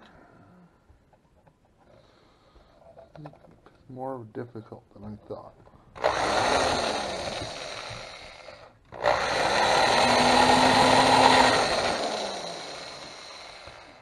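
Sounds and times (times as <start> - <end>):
drill press drilling metal: 6.0 - 14.0.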